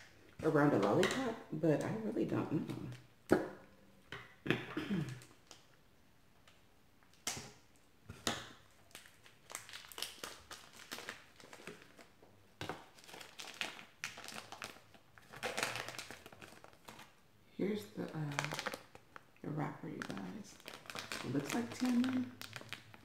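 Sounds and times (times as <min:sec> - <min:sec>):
plastic candy wrapper crinkling: 0:08.2 - 0:23.0.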